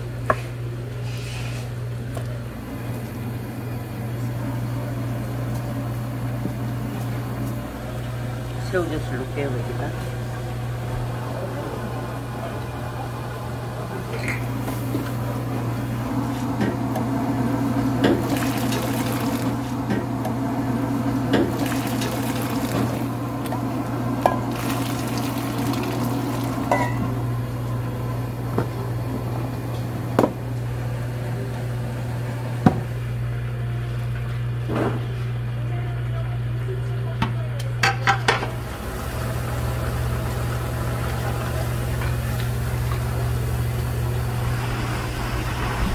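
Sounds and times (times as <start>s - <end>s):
broth boiling hard: 2.4s - 33.0s, 38.4s - 45.9s
ladle scooping and pouring: 18.2s - 19.7s, 21.4s - 23.1s, 24.4s - 26.7s
low hum: 38.5s - 45.9s.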